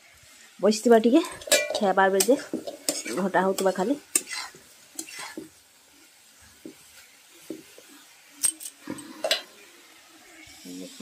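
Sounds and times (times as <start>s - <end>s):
metal spatula scraping a steel pan: 1.2s - 5.5s.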